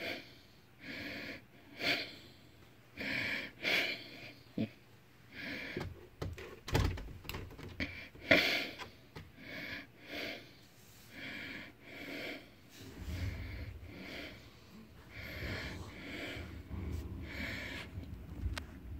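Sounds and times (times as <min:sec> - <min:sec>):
noisy breathing puffs: 0:00.0 - 0:04.7, 0:05.3 - 0:06.1, 0:07.8 - 0:18.9
low handling rumble: 0:12.7 - 0:18.9.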